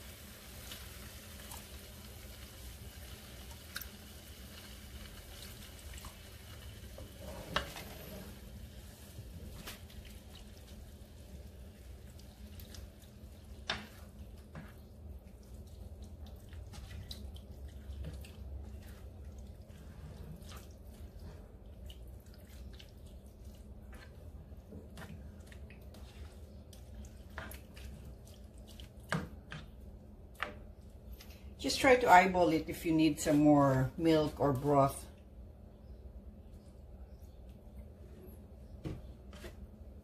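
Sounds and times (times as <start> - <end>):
low steady hum: 0.0 - 40.0
spatula stirring sauce: 9.6 - 31.0.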